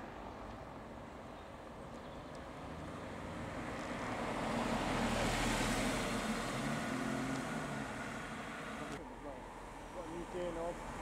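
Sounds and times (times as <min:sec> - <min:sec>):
car engine passing by: 0:02.6 - 0:09.0.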